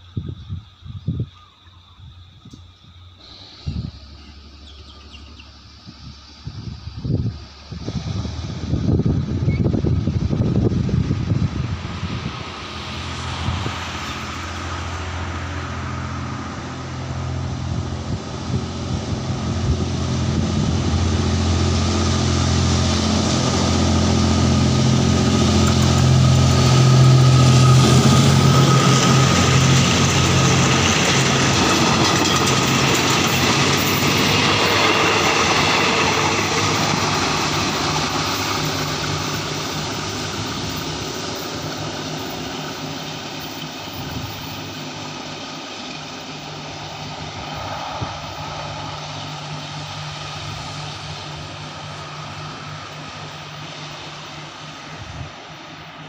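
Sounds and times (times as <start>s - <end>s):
diesel locomotive engine drone: 0.0s - 56.0s
train carriages rolling on rails: 2.4s - 56.0s.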